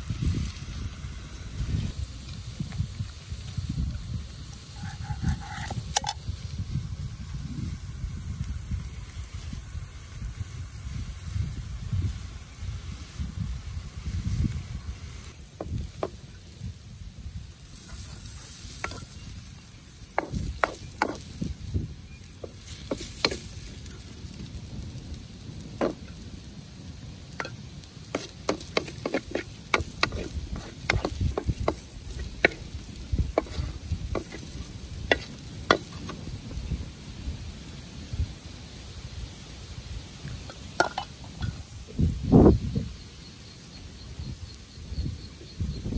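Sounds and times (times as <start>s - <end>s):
spatula scraping a steel wok: 4.6s - 6.2s, 17.6s - 24.2s, 27.4s - 36.6s.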